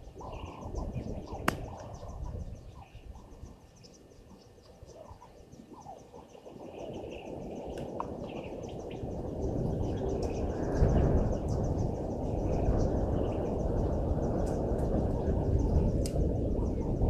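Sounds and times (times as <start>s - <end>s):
bird-like calls: 0.0s - 10.5s
steady high chirping: 0.0s - 14.4s.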